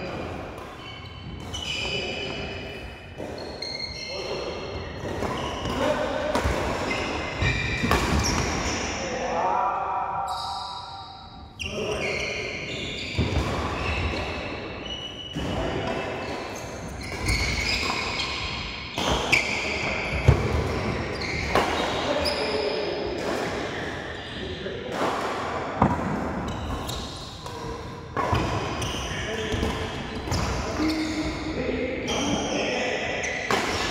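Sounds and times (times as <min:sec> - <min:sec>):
shoes squeaking on court: 0:00.6 - 0:08.9, 0:11.6 - 0:22.8, 0:26.4 - 0:31.5.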